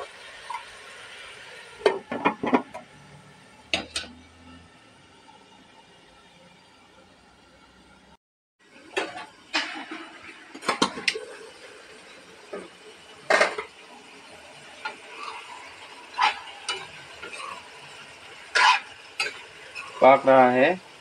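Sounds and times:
metal spoon scraping a pan: 14.8 - 17.8, 18.4 - 20.3.

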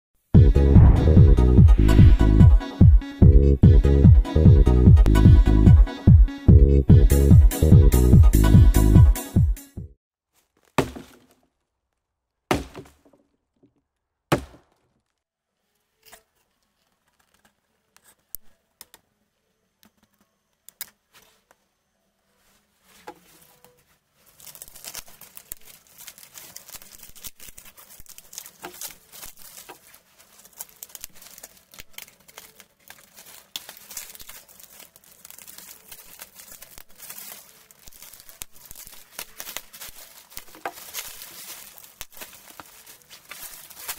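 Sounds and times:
scissors cutting plastic bag: 23.3 - 43.9.

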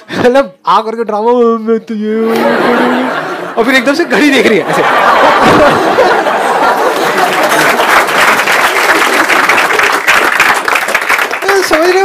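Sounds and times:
crowd laughing: 2.2 - 10.1
audience clapping: 5.3 - 12.0.

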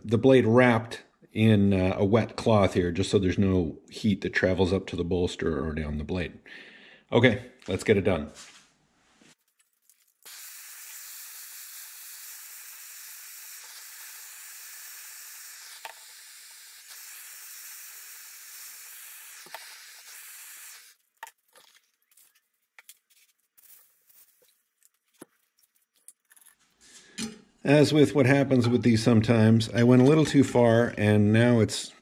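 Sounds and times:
gas torch hissing: 10.3 - 21.0.

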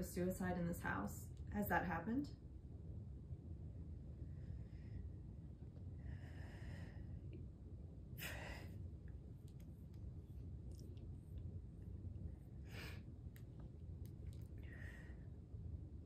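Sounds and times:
low room hum: 0.0 - 16.0
faint breathing: 4.2 - 7.5, 8.2 - 9.2, 12.3 - 13.4, 14.5 - 15.5.

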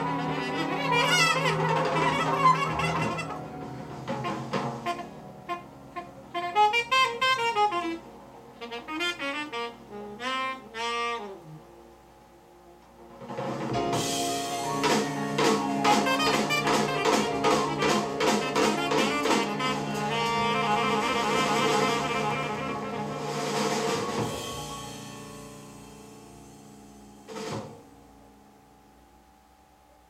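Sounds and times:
drum kit accented beats: 0.0 - 8.0, 12.9 - 28.5
jazz ensemble with saxophone: 0.0 - 28.1.

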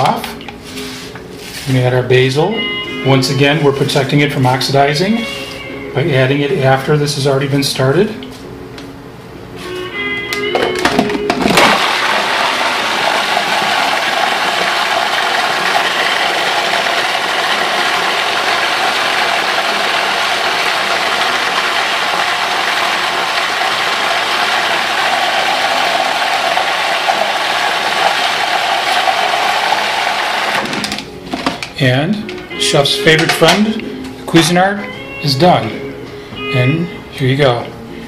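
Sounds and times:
food processor running: 11.3 - 31.1.

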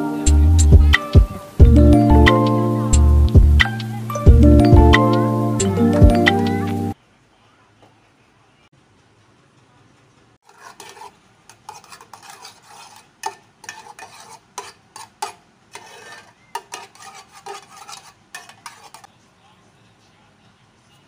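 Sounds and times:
metal spoon scraping saucepan: 10.4 - 19.1.

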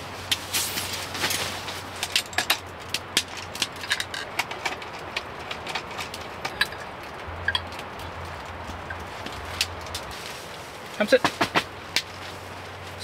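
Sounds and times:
fire hiss: 0.0 - 2.2
wood fire crackling and popping: 0.0 - 13.0.

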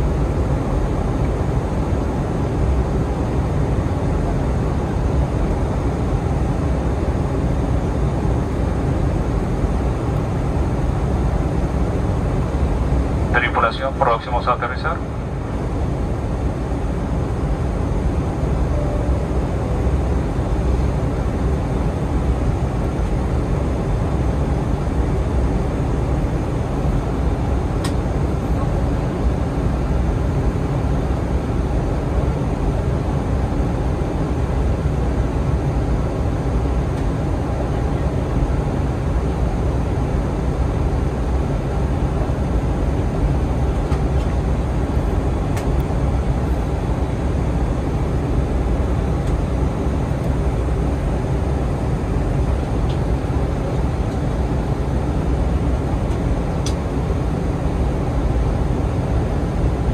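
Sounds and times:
jet engines rumbling in cabin: 0.0 - 59.9.

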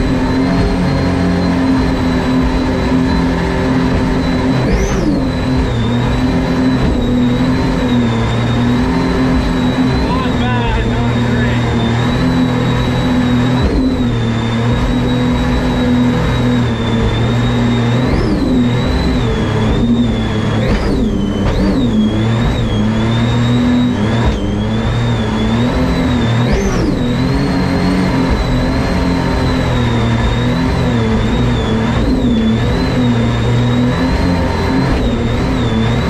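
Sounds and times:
boat engine whining: 0.0 - 36.0.

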